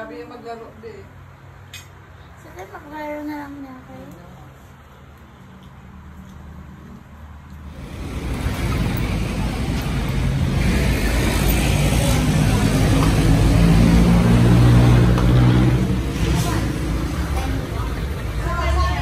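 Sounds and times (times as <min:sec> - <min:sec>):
passing motor vehicles: 0:00.0 - 0:19.0
heavy engine low drone: 0:07.7 - 0:18.4.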